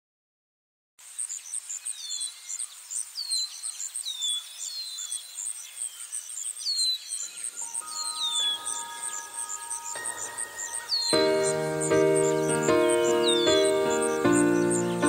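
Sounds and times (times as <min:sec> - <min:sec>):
short high chirps: 0:07.6 - 0:14.0.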